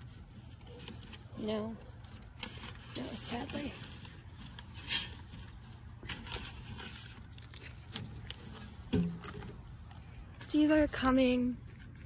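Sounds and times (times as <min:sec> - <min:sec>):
paper mail rustling: 0:00.0 - 0:12.0.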